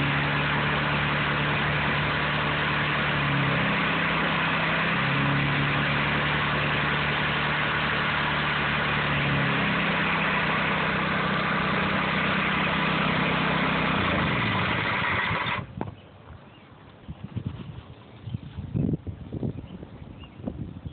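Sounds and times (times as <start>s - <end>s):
pressure washer engine running: 0.0s - 15.7s.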